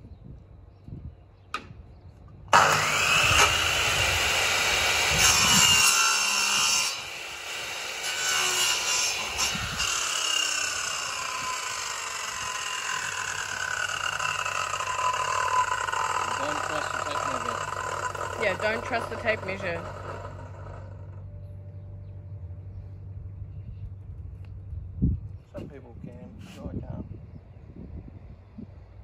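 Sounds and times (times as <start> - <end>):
mitre saw cutting wood: 2.5 - 21.2.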